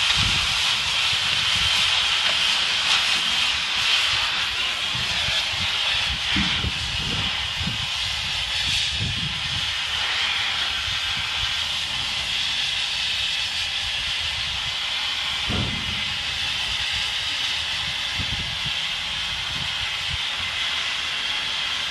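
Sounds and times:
cutting torch hissing: 0.0 - 21.9
low rumbles: 15.4 - 17.1.

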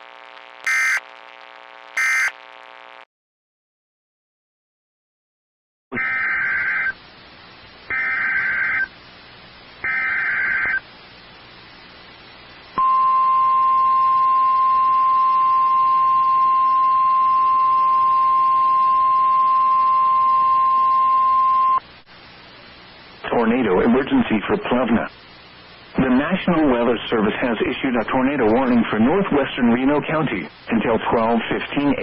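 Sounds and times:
harsh digital data bursts: 0.6 - 1.1, 2.0 - 2.4
steady warning alarm tone: 0.7 - 1.0, 2.0 - 2.4, 7.9 - 8.9, 9.9 - 10.8.

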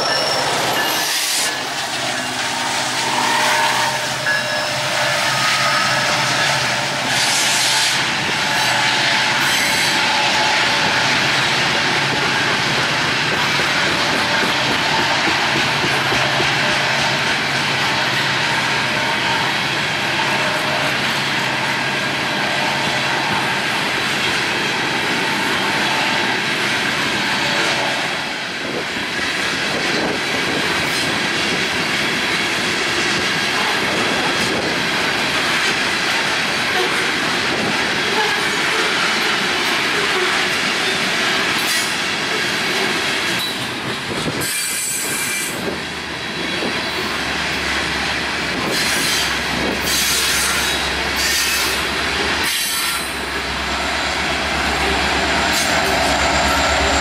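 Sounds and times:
locomotive low drone: 0.0 - 19.0, 50.8 - 57.0
train wheels clattering on rails: 0.0 - 57.0.

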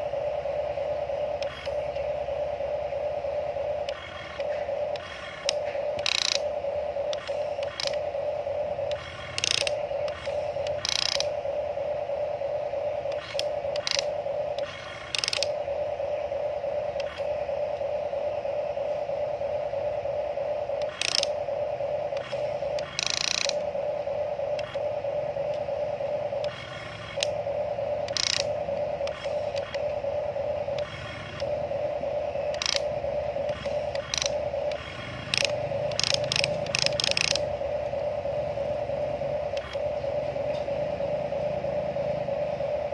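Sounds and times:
toy excavator motors whirring: 3.9 - 6.5, 7.1 - 8.1, 8.9 - 11.4, 13.1 - 15.6, 20.8 - 21.4, 22.2 - 23.6, 28.1 - 29.8, 33.5 - 37.5.

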